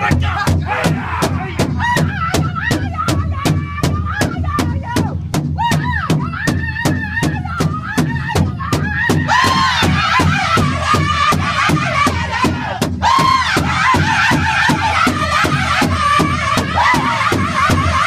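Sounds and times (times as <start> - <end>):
big drum fast steady beat: 0.0 - 18.0.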